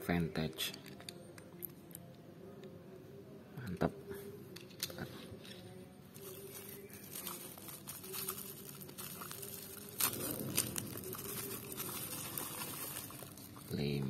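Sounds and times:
bubble wrap rustling and crinkling: 6.1s - 14.0s
sharp plastic crackles: 6.2s - 14.0s.

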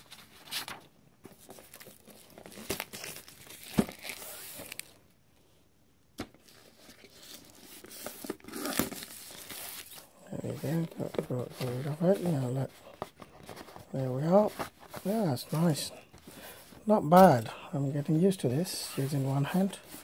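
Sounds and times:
plastic wrap tearing and crinkling: 1.6s - 5.0s, 6.4s - 10.1s.

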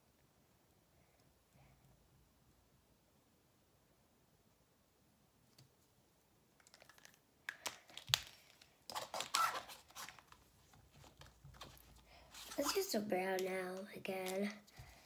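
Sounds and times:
plastic marker pens clicking: 6.6s - 9.6s.

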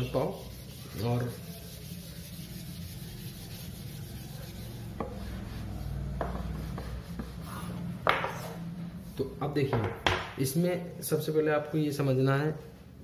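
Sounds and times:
cloth rubbing chalkboard: 0.0s - 9.3s.

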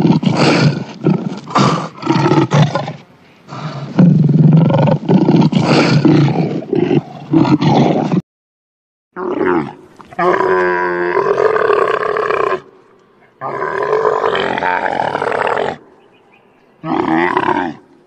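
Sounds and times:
lion growling and roaring: 0.0s - 8.2s, 13.4s - 15.8s, 16.8s - 18.0s
camel groaning call: 16.8s - 17.9s.

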